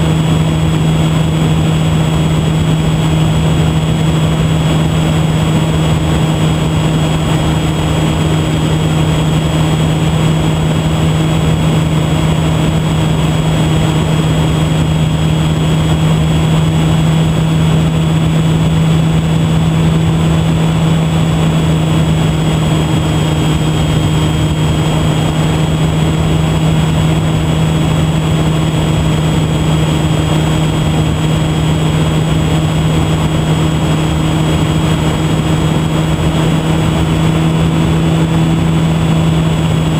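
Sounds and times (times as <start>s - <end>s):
model plane motor whine: 0.0s - 39.9s
rushing air noise: 0.0s - 39.9s.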